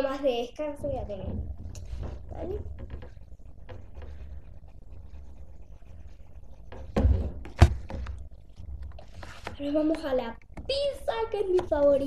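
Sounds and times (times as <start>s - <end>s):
knock on table: 6.7s - 8.2s.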